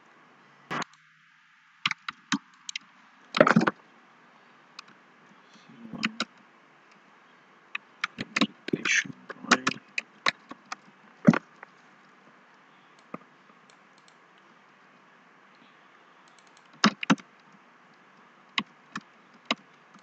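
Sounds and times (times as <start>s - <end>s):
faint steady hiss: 0.0s - 20.0s
keyboard key clicks: 16.3s - 17.3s.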